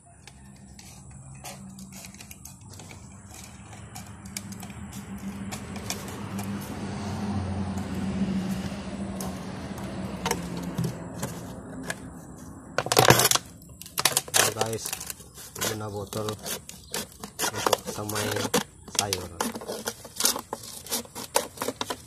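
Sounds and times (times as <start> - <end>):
plastic bottle cut with scissors: 12.8 - 22.0.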